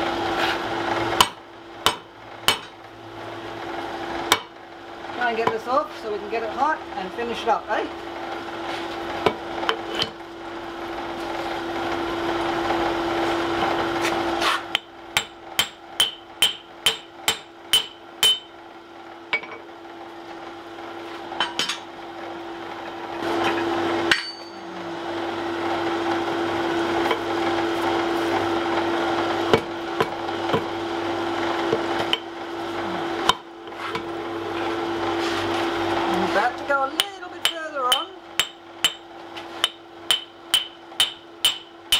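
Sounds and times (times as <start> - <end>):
forge blower humming: 0.0 - 41.9
hammer blows ringing on steel: 15.2 - 18.5, 39.6 - 41.7.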